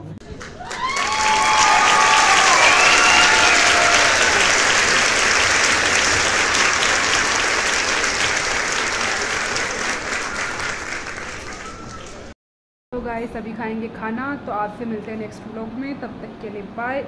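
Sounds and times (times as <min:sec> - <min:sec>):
people clapping: 0:00.2 - 0:12.4.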